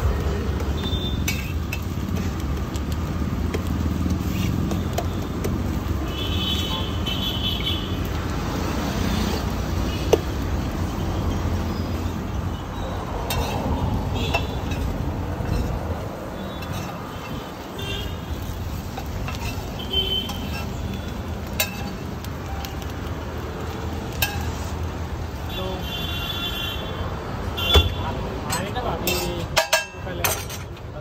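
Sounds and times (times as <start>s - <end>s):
road traffic rumble: 0.0s - 31.0s
car horn toot: 27.6s - 28.1s.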